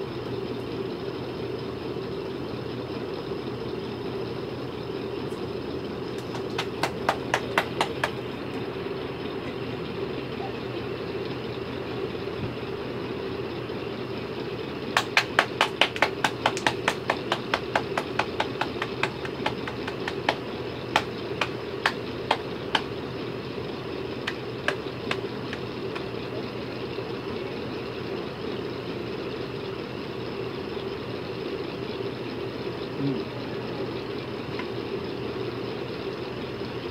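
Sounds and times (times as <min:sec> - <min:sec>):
steady low hum: 0:00.0 - 0:36.9
hands clapping: 0:06.2 - 0:08.6, 0:15.0 - 0:22.9, 0:24.2 - 0:26.1.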